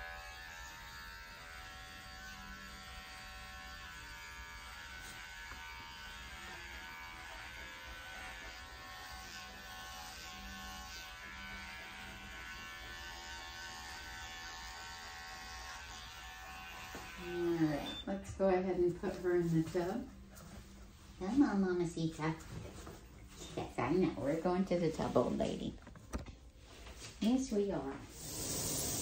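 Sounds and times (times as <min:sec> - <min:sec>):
electric clippers buzzing: 0:00.0 - 0:18.2.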